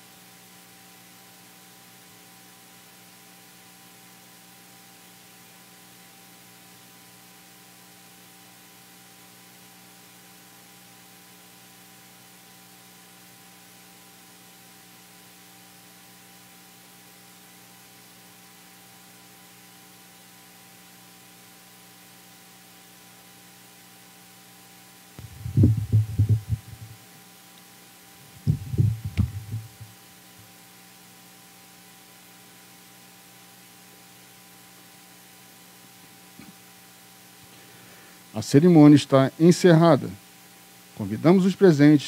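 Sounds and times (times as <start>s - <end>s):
steady electrical hum: 0.0s - 42.0s
microphone handling thumps: 25.2s - 27.0s, 28.3s - 29.9s.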